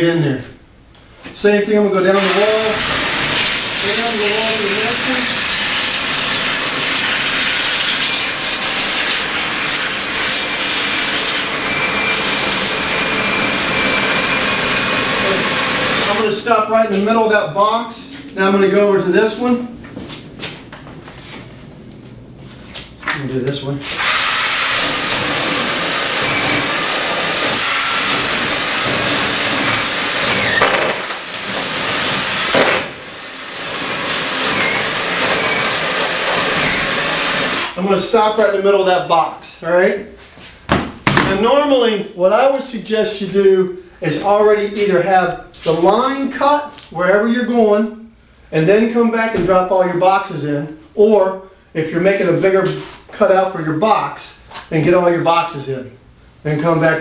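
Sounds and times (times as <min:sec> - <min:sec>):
power tool cutting foam: 0:02.2 - 0:16.2, 0:23.9 - 0:37.8.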